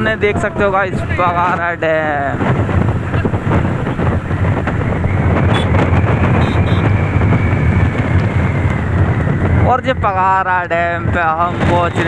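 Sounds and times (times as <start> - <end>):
motorcycle engine: 0.0 - 9.8
road noise: 0.0 - 12.0
wind rush on microphone: 0.0 - 12.0.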